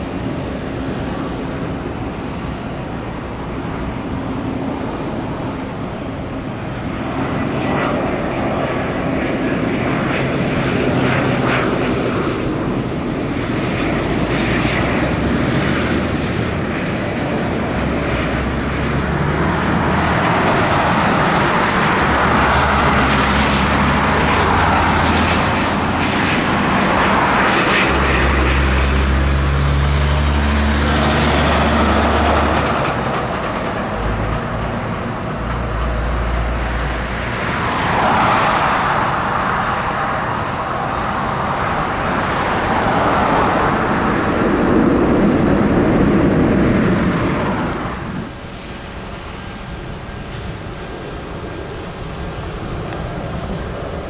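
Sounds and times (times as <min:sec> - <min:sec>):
jet airliner engine noise: 0:00.0 - 0:54.0
wind rumbling on microphone: 0:00.0 - 0:54.0.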